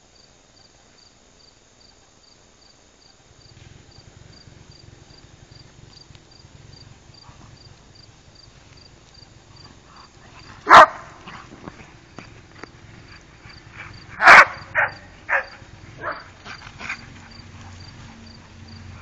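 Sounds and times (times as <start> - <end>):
crickets chirping: 0.0 - 19.0
dog barking: 10.6 - 11.5, 14.2 - 17.0.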